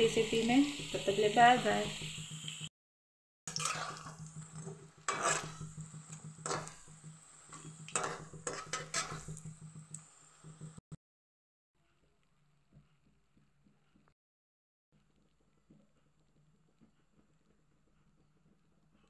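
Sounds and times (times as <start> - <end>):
patties sizzling in hot oil: 0.0 - 2.7, 3.5 - 10.8
metal spatula scraping a pan: 3.5 - 9.8.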